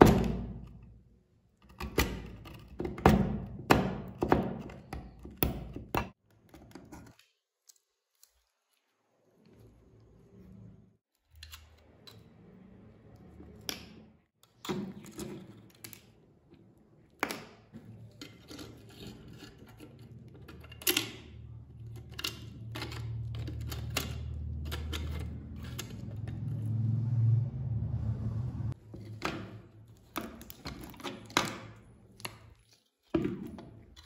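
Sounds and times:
metal tweezers scraping and clicking: 18.1s - 26.3s
low rumble: 24.3s - 28.8s.

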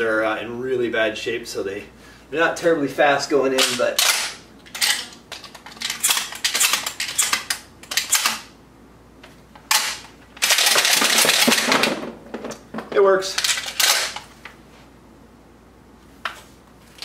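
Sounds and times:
shells rattling: 3.6s - 8.5s, 9.7s - 12.1s, 13.3s - 14.2s
shells clicking into shotgun: 9.7s - 11.7s, 13.3s - 14.2s.

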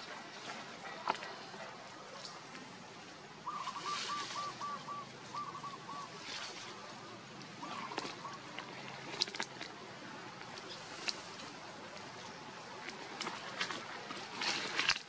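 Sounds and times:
outdoor background noise: 0.0s - 15.0s
monkeys rustling leaf litter: 3.4s - 9.7s.

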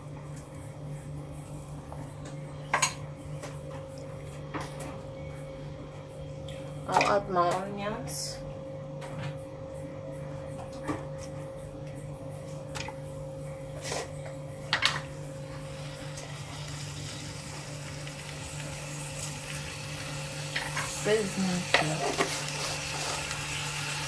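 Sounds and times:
meat sizzling in pot: 15.2s - 24.0s.

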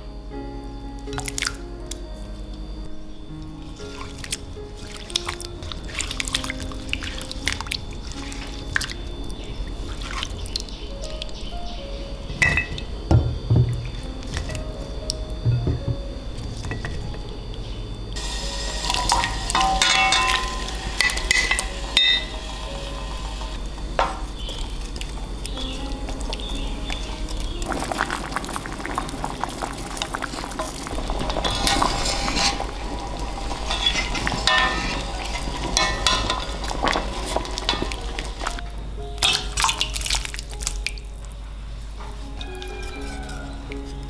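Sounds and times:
boiling water bubbling: 1.1s - 44.0s
wooden spoon stirring: 3.6s - 11.4s, 13.6s - 17.3s, 18.2s - 41.0s, 42.0s - 44.0s
potato sticks clinking into pot: 18.8s - 22.3s, 33.3s - 38.5s, 39.2s - 40.0s
wire strainer clinking on bowl: 18.9s - 22.4s, 33.7s - 38.6s.

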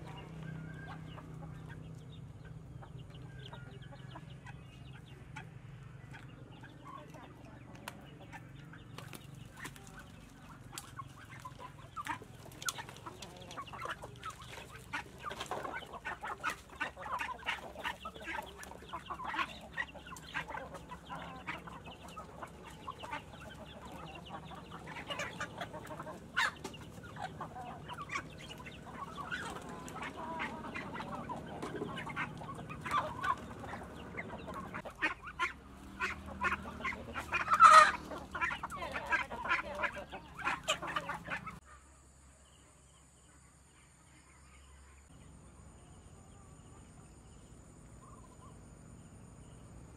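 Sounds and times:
pecking ticks on ground: 0.0s - 41.5s
chickens clucking: 0.0s - 41.8s, 44.0s - 49.9s
chicken loud call: 13.2s - 41.6s.

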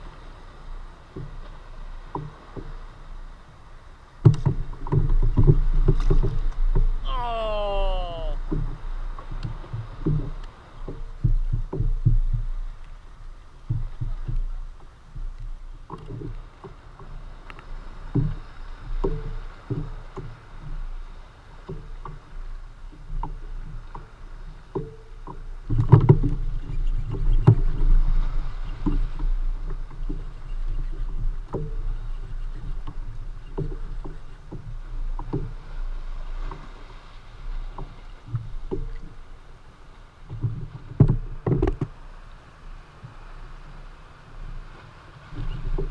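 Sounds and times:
water lapping against hull: 0.0s - 45.9s
knocks and thumps on hull: 1.1s - 2.8s, 4.2s - 7.5s, 8.2s - 12.8s, 13.6s - 17.2s, 17.8s - 21.0s, 21.6s - 39.2s, 40.2s - 42.0s, 45.2s - 45.9s.

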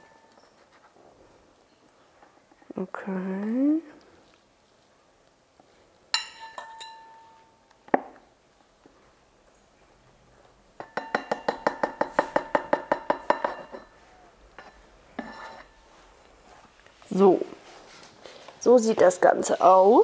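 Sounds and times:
fork clinking on ceramic bowl: 6.2s - 7.3s, 10.8s - 14.0s, 14.6s - 15.8s.

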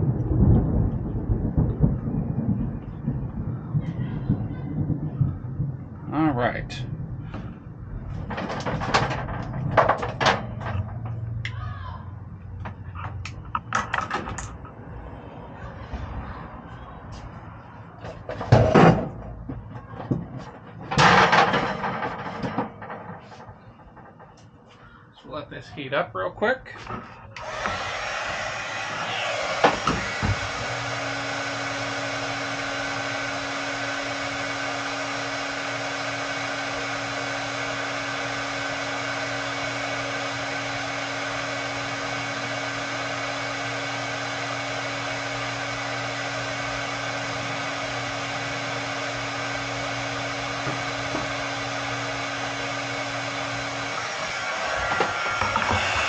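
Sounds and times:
heat gun blowing: 27.4s - 56.0s
steady hum: 50.2s - 56.0s.

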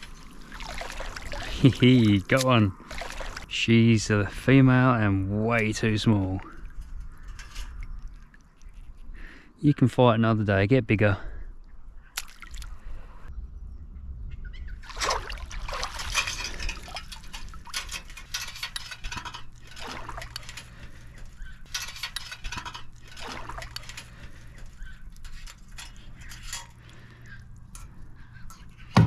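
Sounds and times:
shallow water splashing: 0.0s - 3.5s, 12.2s - 13.0s, 14.8s - 26.0s.

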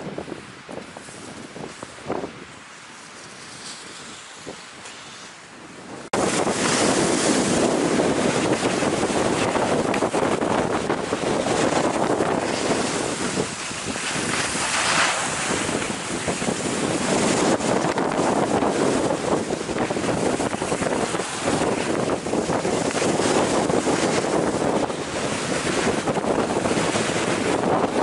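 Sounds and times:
wind buffeting microphone: 0.0s - 28.0s
skis sliding over packed snow: 0.2s - 5.6s, 6.2s - 28.0s.

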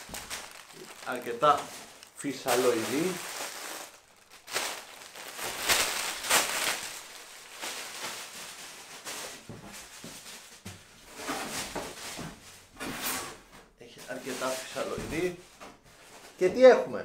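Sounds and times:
plastic packing rustling: 0.0s - 12.9s, 14.0s - 16.7s.

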